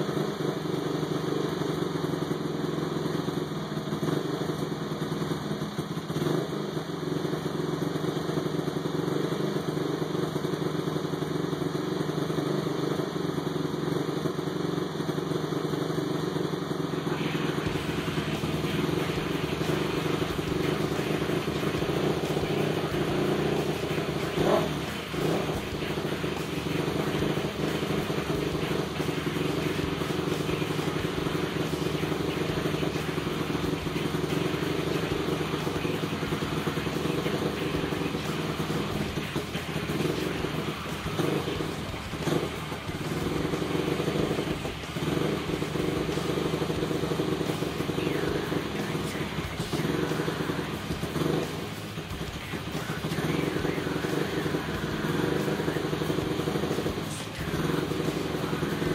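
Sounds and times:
quad engine running: 0.0s - 58.9s.

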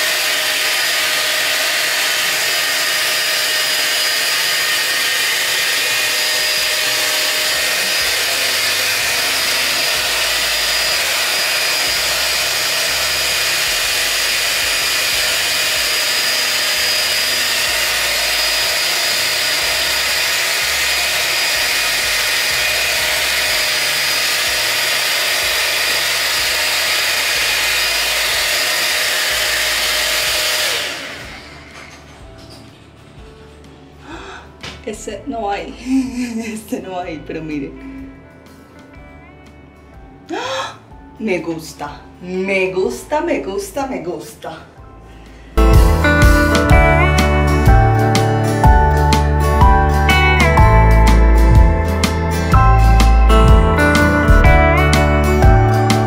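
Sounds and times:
hot air styler rushing air: 0.0s - 32.0s, 45.2s - 56.0s
motor whine: 0.0s - 32.4s, 44.9s - 56.0s.

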